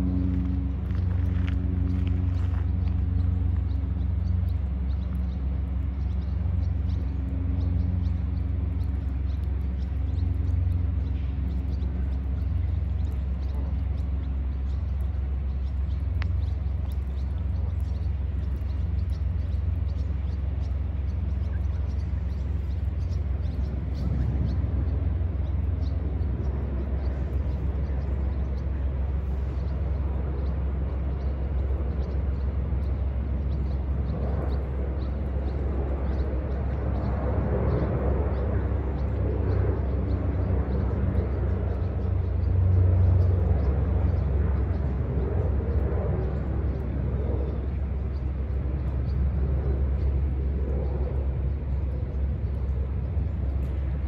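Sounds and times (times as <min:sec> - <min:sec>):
outdoor background rumble: 0:00.0 - 0:54.0.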